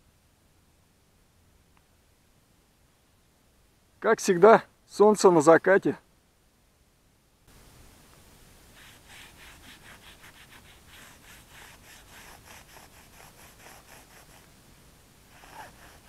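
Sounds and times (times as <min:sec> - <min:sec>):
cloth rag rubbing on rubber tyre: 0:08.7 - 0:14.5, 0:15.3 - 0:16.0.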